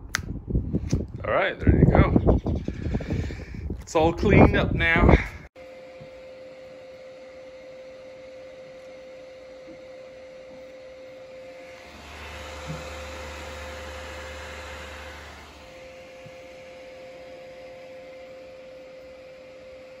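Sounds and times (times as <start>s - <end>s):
rushing noise with deep hum: 0.0s - 5.5s
computer fan whining: 0.0s - 20.0s.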